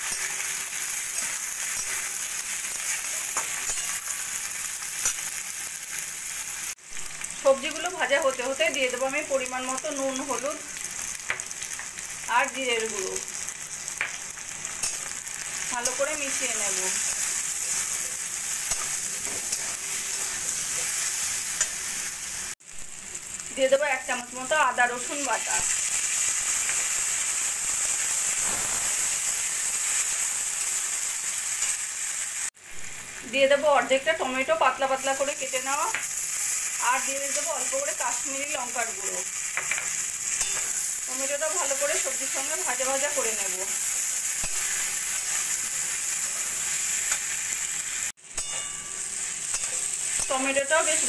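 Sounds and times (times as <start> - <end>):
metal spatula stirring: 0.0 - 4.1, 17.0 - 21.9
vegetables sizzling in oil: 0.0 - 51.0.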